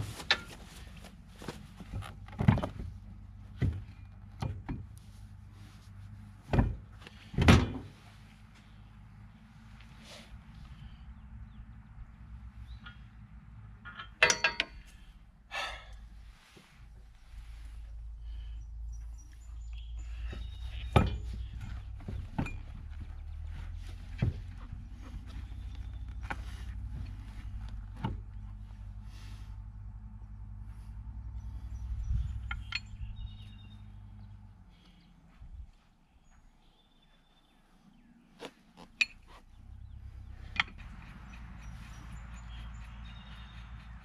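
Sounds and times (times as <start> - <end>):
low engine hum: 0.0 - 44.0
metal clinks of wheel hardware: 13.8 - 15.0, 32.4 - 33.2, 40.4 - 41.4.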